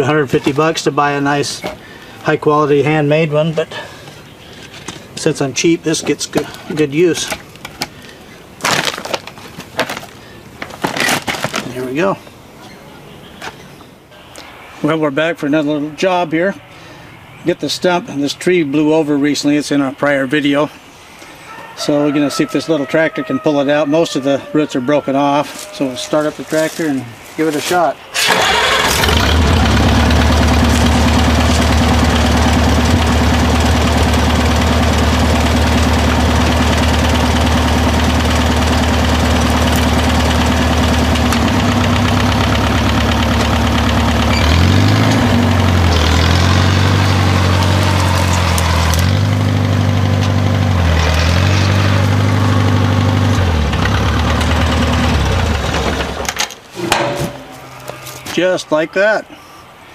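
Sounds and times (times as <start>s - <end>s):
tractor engine idling and revving: 28.2s - 58.2s.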